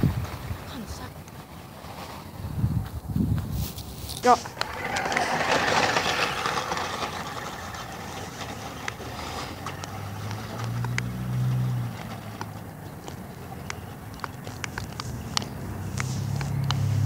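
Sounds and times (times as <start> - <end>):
wind noise on microphone: 0.0 - 1.2, 2.0 - 7.7
low motor hum: 4.4 - 17.0.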